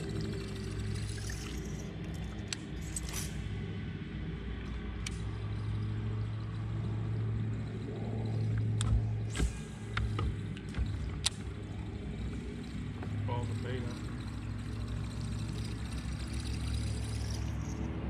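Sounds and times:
boat motor humming: 0.0 - 18.0
sharp clicks and knocks: 7.4 - 13.3.

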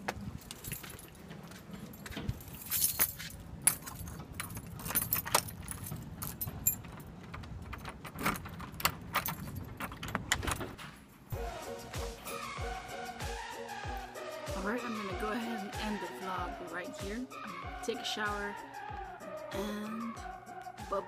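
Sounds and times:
keys jangling: 0.3 - 10.8.

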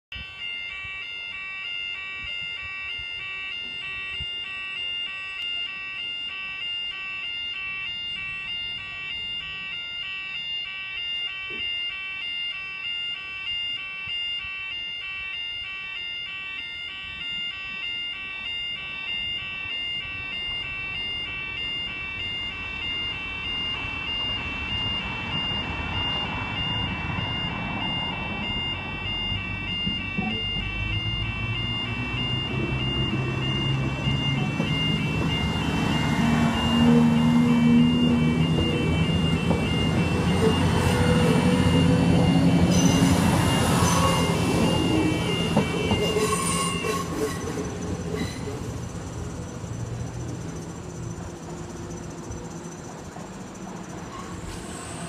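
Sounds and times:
level crossing warning alarm: 0.0 - 55.0
diesel train rumble: 20.7 - 55.0.

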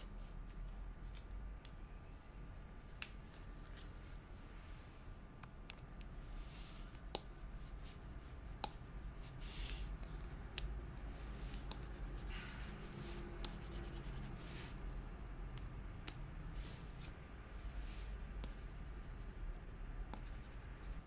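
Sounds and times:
pen nib scratching on screen protector: 11.3 - 14.8, 18.4 - 21.0.

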